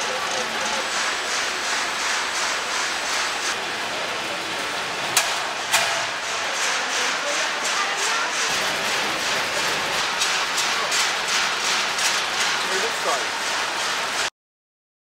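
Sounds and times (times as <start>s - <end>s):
peanuts rattling on conveyor: 0.0s - 14.3s.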